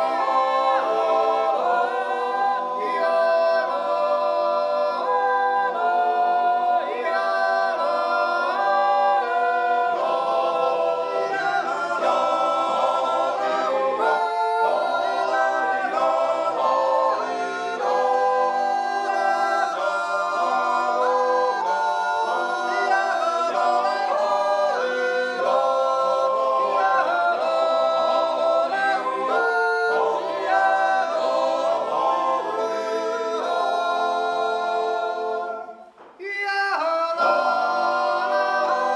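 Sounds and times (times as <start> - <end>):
men's choir yodeling: 0.0 - 38.9.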